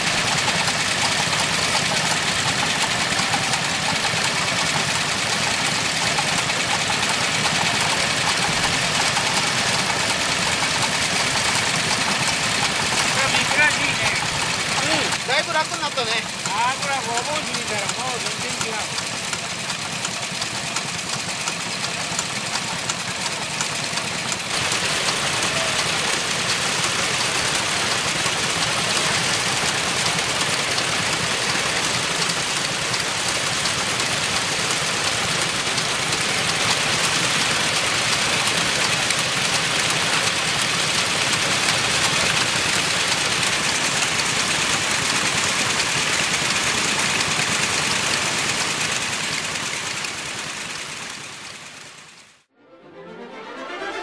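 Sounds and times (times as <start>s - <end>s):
diesel engine running: 0.0s - 52.5s.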